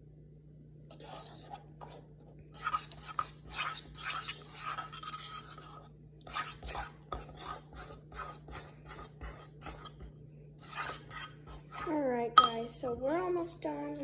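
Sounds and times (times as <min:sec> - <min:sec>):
spoon scraping ceramic bowl: 0:00.9 - 0:02.0, 0:02.6 - 0:12.7.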